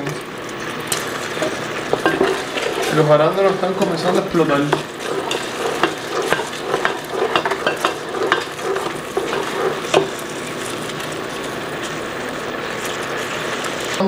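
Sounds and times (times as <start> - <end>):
syrup sizzling and bubbling: 0.0 - 14.0
wooden spatula knocking on pot: 3.8 - 10.1.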